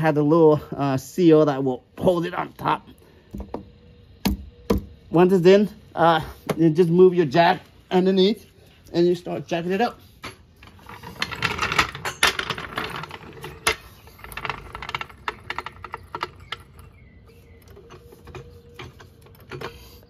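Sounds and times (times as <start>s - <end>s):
floor jack rattling on concrete: 10.6s - 17.0s.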